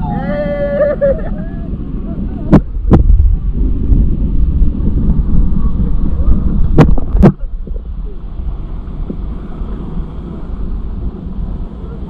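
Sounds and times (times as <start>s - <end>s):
surf washing: 0.0s - 12.0s
wind buffeting microphone: 0.0s - 12.0s.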